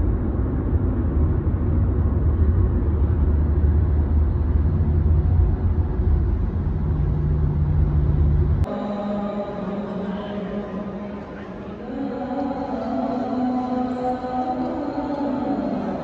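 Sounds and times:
car cabin road and engine noise: 0.0 - 8.8
low hum: 0.0 - 16.0.

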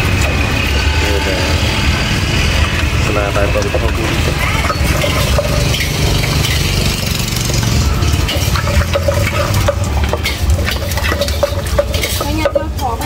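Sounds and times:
spoon clinking against clay pot: 4.3 - 13.0.

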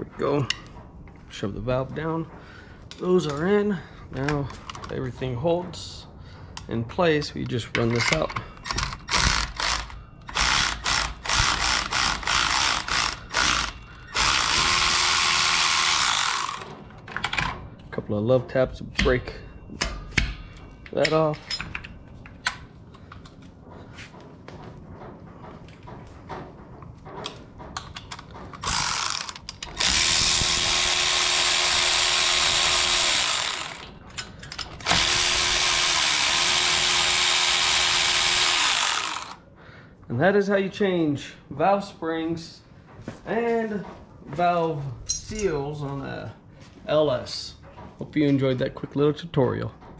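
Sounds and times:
electric ratchet whirring: 8.6 - 16.8, 28.6 - 33.9, 34.8 - 39.4.

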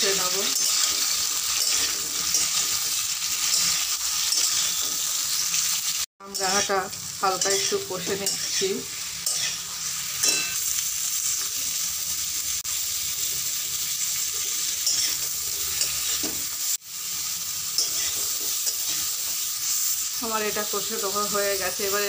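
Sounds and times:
fruit sizzling in hot oil: 0.0 - 22.0
spatula scraping a metal pan: 0.5 - 5.5, 7.4 - 10.7, 17.8 - 19.1.

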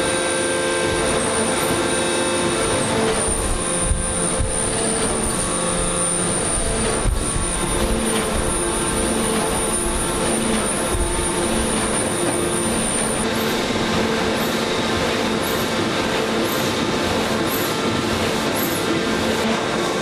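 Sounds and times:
forging machine din: 0.8 - 18.9.

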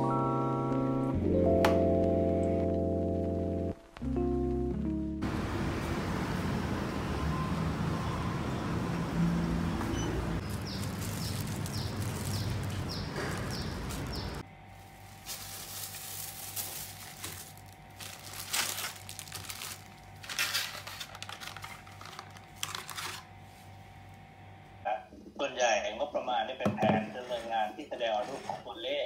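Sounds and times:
street traffic: 5.2 - 14.7
plastic bags crinkling: 10.4 - 23.3.

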